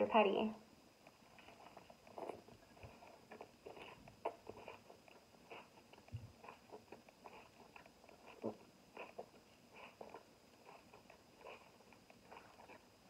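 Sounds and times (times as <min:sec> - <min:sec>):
chewing with wet lip smacks: 0:01.0 - 0:13.0
person biting into taco: 0:03.0 - 0:12.8.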